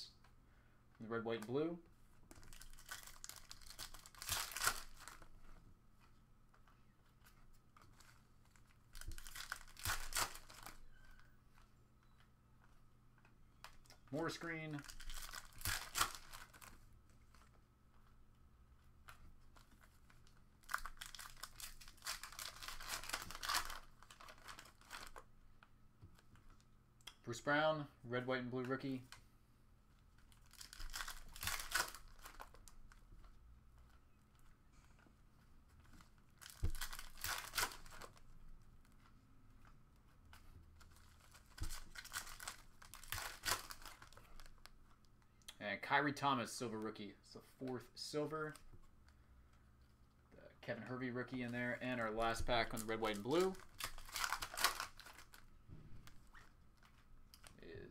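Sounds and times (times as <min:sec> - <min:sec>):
foil wrapper crinkling and tearing: 0:02.3 - 0:05.3, 0:07.9 - 0:11.2, 0:13.6 - 0:17.5, 0:19.5 - 0:25.2, 0:30.2 - 0:33.0, 0:35.8 - 0:38.3, 0:40.8 - 0:44.7, 0:52.4 - 0:55.5.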